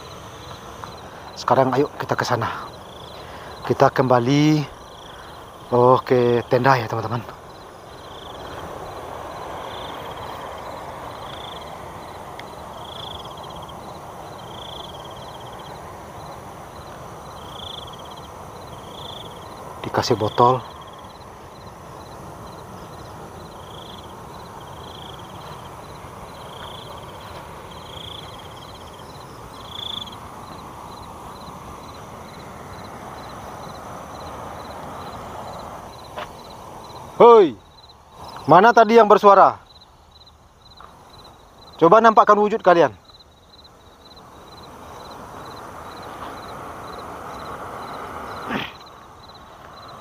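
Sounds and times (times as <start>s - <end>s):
low rushing noise: 0.0s - 38.4s
insect high ticking: 0.0s - 50.0s
insect pulsed trill: 0.0s - 50.0s
low rustling hiss: 0.0s - 50.0s.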